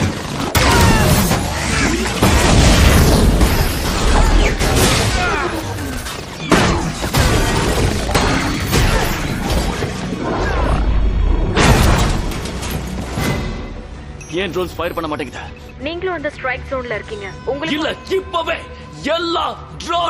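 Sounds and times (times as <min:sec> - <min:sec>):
crashes and shattering: 0:00.0 - 0:10.0
dramatic film score: 0:00.0 - 0:20.0.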